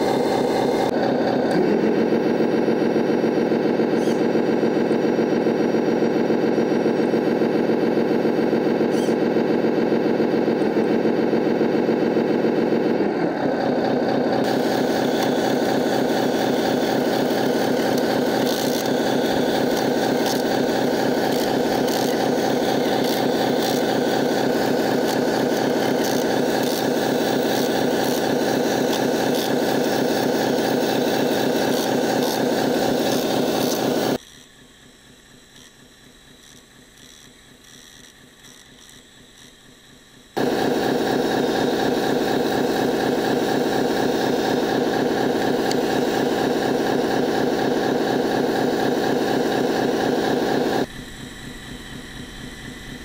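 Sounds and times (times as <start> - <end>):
small electric motor whirring: 0.0 - 53.0.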